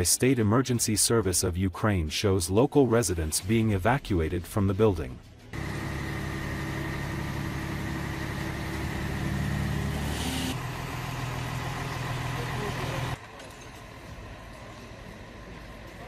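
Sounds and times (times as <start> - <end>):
outdoor background: 0.0 - 16.0
fire truck engine running: 5.5 - 16.0.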